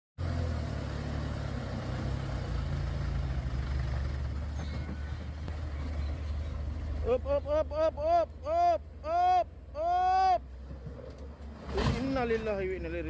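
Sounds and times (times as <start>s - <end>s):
diesel truck engine droning: 0.2s - 13.0s.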